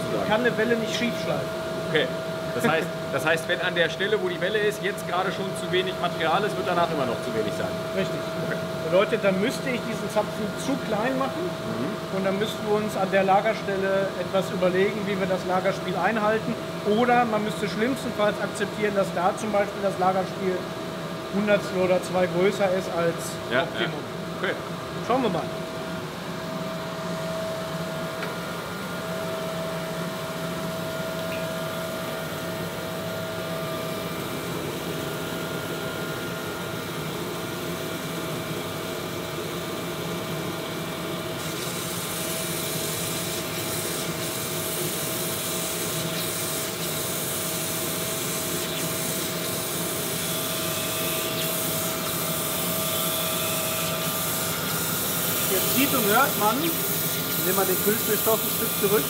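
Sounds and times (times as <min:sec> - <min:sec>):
steady machine whine: 0:00.0 - 0:59.0
grinding machine grinding metal: 0:41.4 - 0:59.0
bright hiss: 0:54.3 - 0:59.0.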